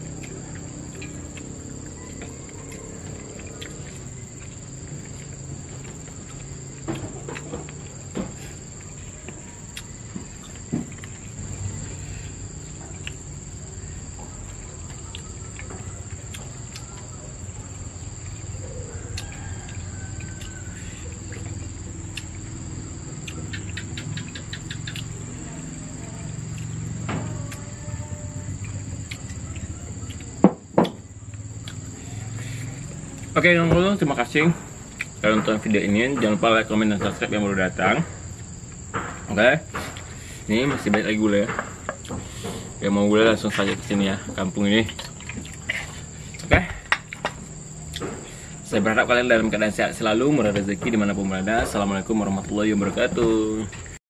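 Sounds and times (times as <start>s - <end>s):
eating by hand clicks and smacks: 0.0s - 11.6s, 14.3s - 27.9s, 28.5s - 31.9s, 32.8s - 36.4s, 38.3s - 51.1s
crickets chirring: 0.0s - 54.0s
high-pitched insect trilling: 0.0s - 54.0s.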